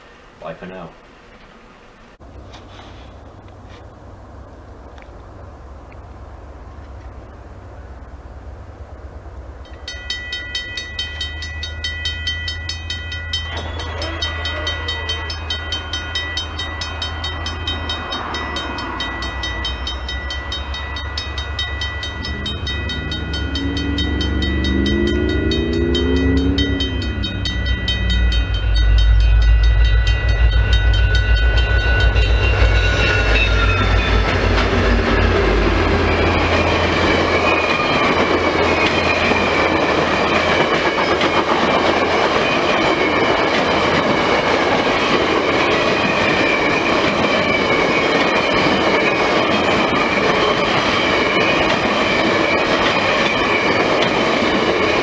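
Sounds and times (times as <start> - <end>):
diesel locomotive rumble: 0.0 - 55.0
crossing warning bell ringing: 9.6 - 55.0
train wheels rattling: 9.6 - 55.0
train horn: 13.6 - 15.9.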